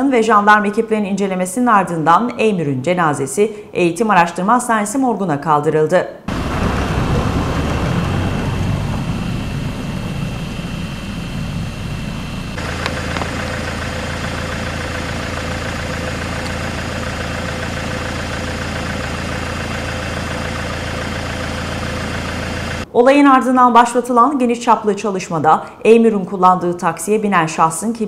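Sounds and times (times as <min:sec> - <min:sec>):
car engine idling: 0:06.3 - 0:22.9
engine rumble: 0:06.3 - 0:22.9.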